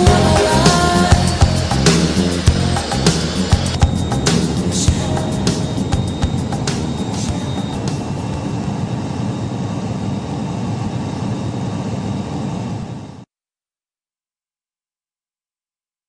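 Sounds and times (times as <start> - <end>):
jet aircraft cabin noise: 0.0 - 13.2.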